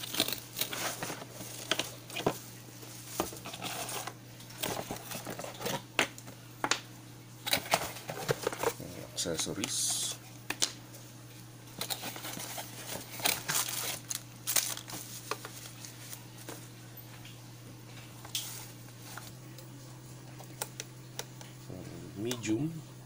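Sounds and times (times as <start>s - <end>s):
bubble wrap crinkling: 0.0s - 5.9s, 11.8s - 16.7s
faint low hum: 0.0s - 23.0s.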